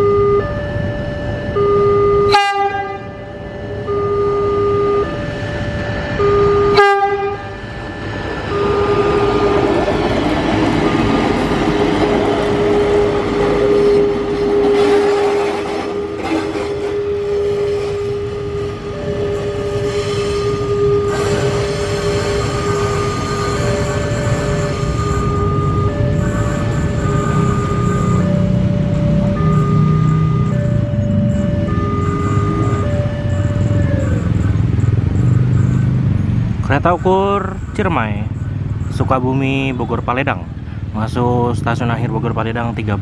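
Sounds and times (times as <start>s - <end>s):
two-tone warning signal: 0.0s - 40.6s
railcar rolling past: 5.2s - 35.2s.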